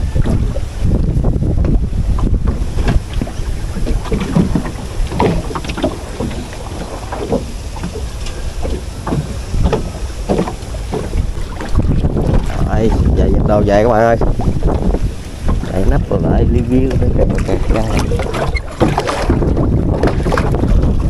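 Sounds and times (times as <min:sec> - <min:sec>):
knocks and rustles of fishing line: 0:00.0 - 0:13.2, 0:14.0 - 0:21.0
wind buffeting microphone: 0:00.0 - 0:21.0.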